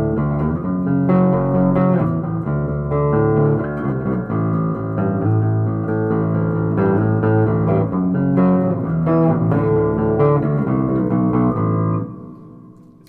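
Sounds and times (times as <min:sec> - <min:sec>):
electric bass plucked notes: 0:00.0 - 0:13.0.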